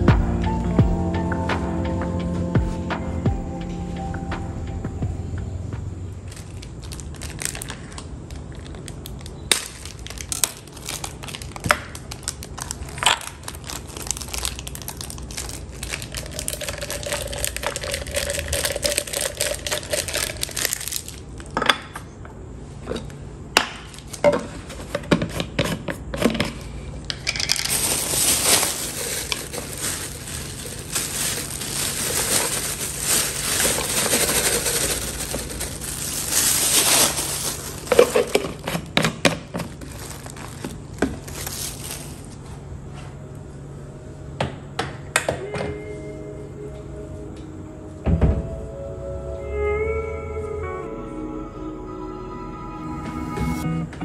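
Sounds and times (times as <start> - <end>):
tissue crinkling: 6.3 - 21.5, 27.3 - 42.4
dry pasta poured into jar: 12.3 - 21.2, 27.3 - 38.8.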